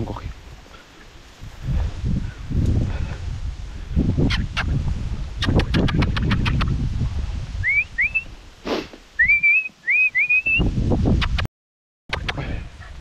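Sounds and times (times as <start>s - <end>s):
rustling in dry brush: 0.0s - 7.6s
person whistling: 7.6s - 8.3s, 9.2s - 10.7s.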